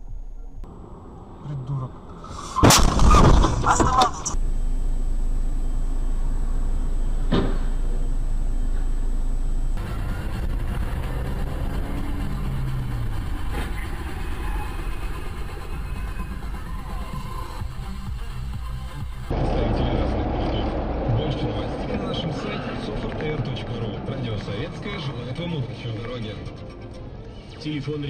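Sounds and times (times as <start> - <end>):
car engine and road rumble: 0.0 - 28.0
loud bangs: 2.3 - 4.4.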